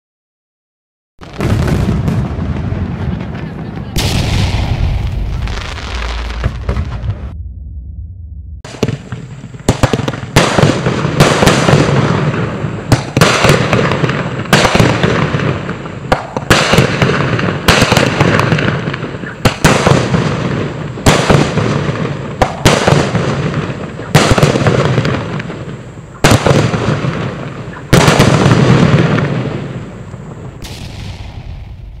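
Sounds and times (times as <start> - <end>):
firework crackle burning out: 1.2 - 7.2
firework bangs: 1.2 - 7.4, 8.6 - 32.0.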